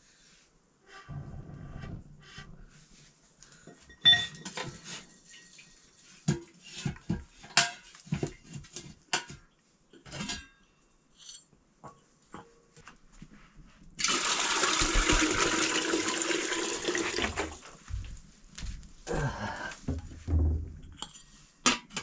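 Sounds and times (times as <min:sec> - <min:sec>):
metal dishes clattering: 0:03.9 - 0:09.4, 0:10.0 - 0:10.6.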